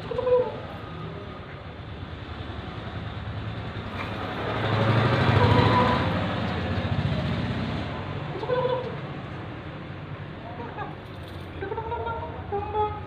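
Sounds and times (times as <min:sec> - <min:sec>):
vehicle engine running: 0:00.0 - 0:10.4.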